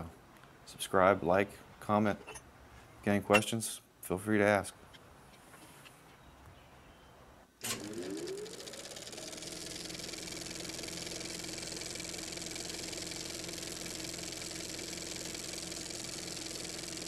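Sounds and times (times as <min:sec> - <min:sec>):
small motorcycle engine: 0:07.6 - 0:17.0.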